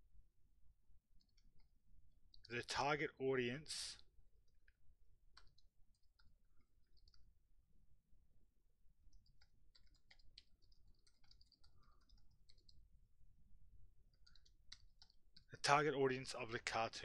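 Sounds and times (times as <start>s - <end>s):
keyboard typing: 5.3s - 7.3s, 9.1s - 12.8s, 14.1s - 15.5s.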